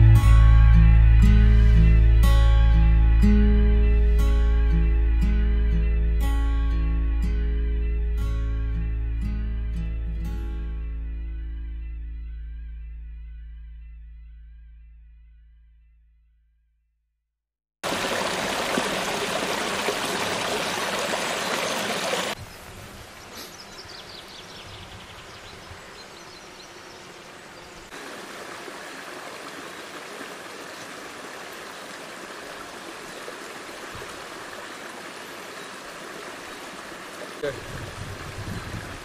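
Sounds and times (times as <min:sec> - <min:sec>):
forest creek flowing: 0:17.8 - 0:39.0.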